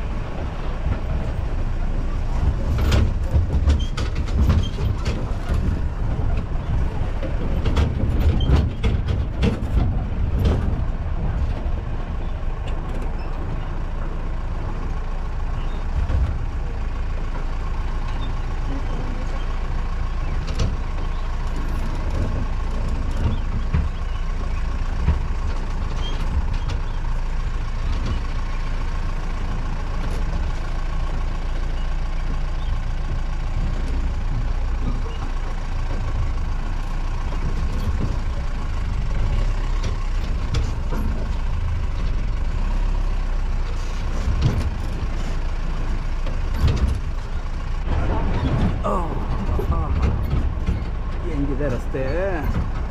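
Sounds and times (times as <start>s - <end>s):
jeep engine rumbling under load: 0.0s - 52.9s
body knocks and rattles: 2.3s - 13.4s, 43.9s - 52.9s.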